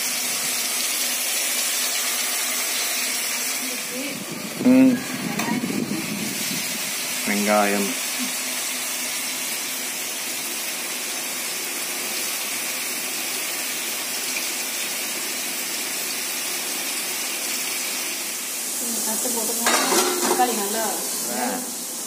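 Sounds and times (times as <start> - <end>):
food sizzling in oil: 0.0 - 22.0.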